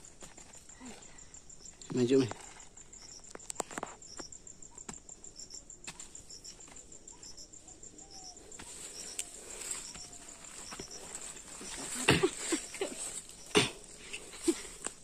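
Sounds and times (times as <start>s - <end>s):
insects trilling: 0.0s - 15.0s
repeating insect chirp: 0.0s - 15.0s
footsteps in dry undergrowth: 8.5s - 15.0s.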